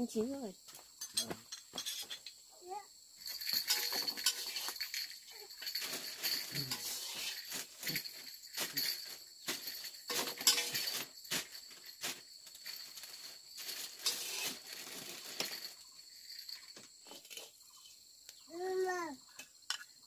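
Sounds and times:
high-pitched insect chorus: 0.0s - 20.0s
kitchen utensils and dishes clinking: 1.0s - 2.3s, 3.4s - 12.2s, 12.9s - 15.8s, 16.4s - 17.6s, 19.7s - 19.9s.

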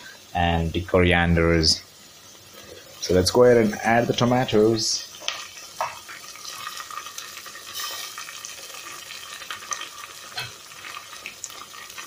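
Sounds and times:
oil sizzling with frying vegetables: 0.0s - 12.0s
small crackles: 5.0s - 12.0s.

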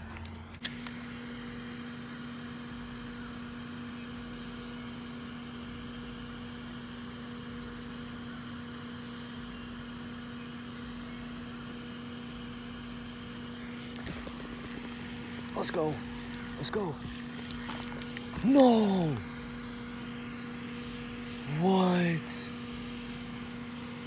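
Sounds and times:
steady mechanical hum: 0.0s - 24.0s.

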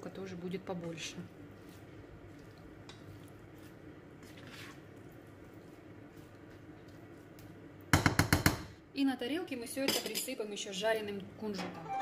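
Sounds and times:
food stirred in a frying pan: 0.7s - 7.9s.

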